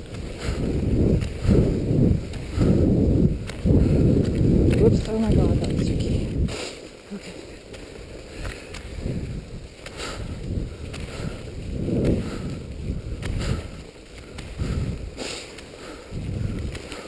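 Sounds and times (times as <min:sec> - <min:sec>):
skis swishing on snow: 0:00.0 - 0:17.0
ski poles clicking: 0:06.6 - 0:17.0.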